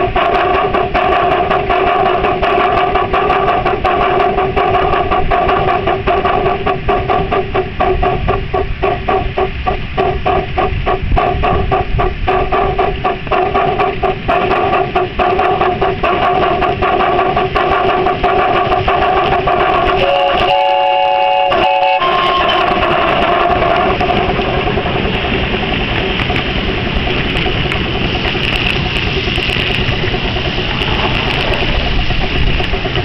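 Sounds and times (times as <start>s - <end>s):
steam whistle blowing: 0.0s - 24.8s
steady hum: 0.0s - 33.0s
steam locomotive exhaust chuffs: 0.0s - 33.0s
wheels rumbling on rail: 0.0s - 33.0s.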